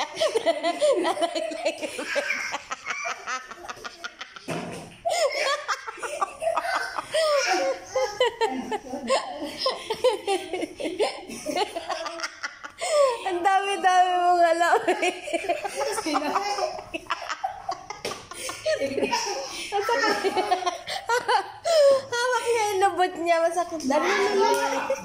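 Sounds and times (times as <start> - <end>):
small child laughing: 0.0 - 13.0, 14.8 - 21.4
people laughing: 0.0 - 22.2.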